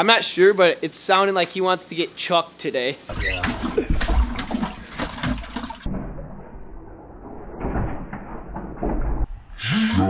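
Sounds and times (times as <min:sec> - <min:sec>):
water and slush sloshing: 0:03.1 - 0:06.0.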